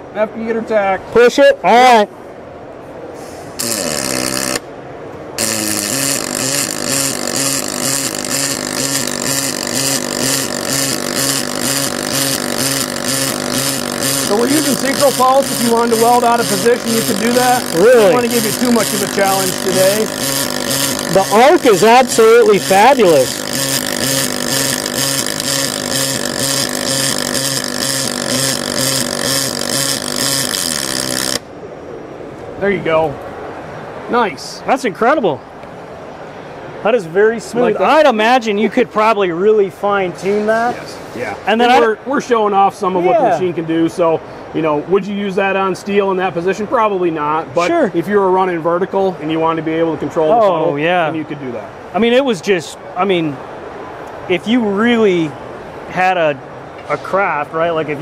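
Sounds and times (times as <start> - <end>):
welding arc buzzing and crackling: 3.6 - 4.7, 5.4 - 31.4.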